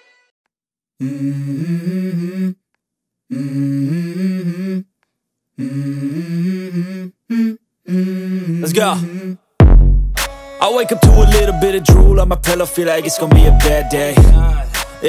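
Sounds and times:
wordless hummed vocal: 0:01.0 - 0:02.6, 0:03.3 - 0:04.9, 0:05.6 - 0:09.5, 0:10.9 - 0:15.0.

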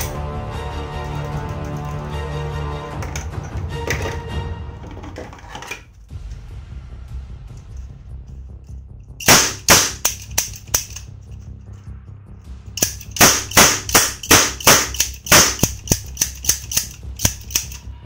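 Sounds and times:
cap gun bangs: 0:09.2 - 0:11.0, 0:12.8 - 0:16.1.

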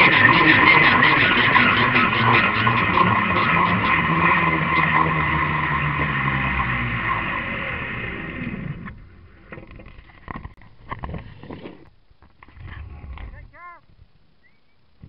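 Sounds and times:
zipwire pulley whirring: 0:00.0 - 0:09.0.

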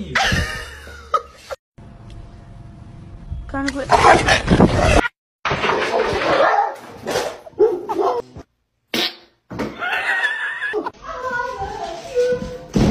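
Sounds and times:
dog barking: 0:06.3 - 0:06.8.

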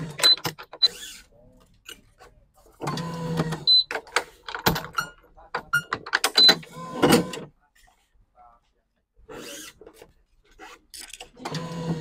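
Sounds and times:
clamps clicking and knocking: 0:03.9 - 0:06.6.

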